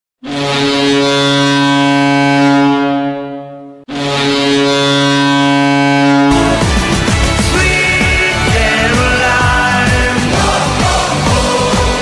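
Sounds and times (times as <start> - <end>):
low goal horn blast: 0.2 - 9.0.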